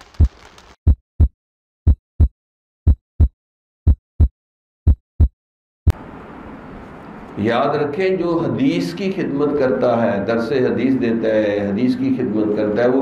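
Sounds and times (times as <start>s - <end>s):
heartbeat thumps: 0.9s - 5.4s.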